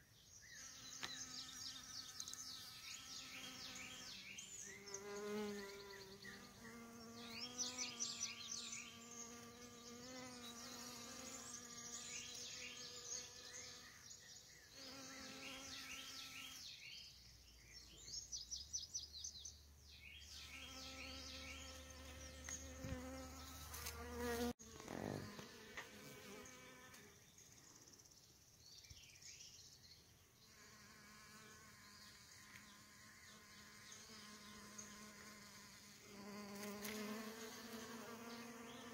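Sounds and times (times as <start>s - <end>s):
bees buzzing in flight: 0.6s - 14.0s, 20.4s - 27.1s, 30.6s - 38.9s.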